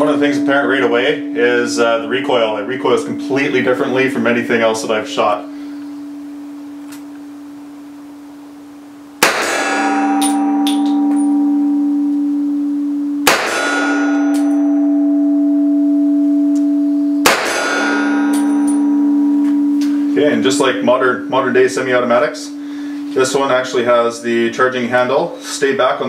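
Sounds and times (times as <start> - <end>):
metallic ringing: 0.0 - 7.3, 9.2 - 25.4
pistol shots: 9.2 - 11.3, 13.2 - 14.6, 17.2 - 18.8.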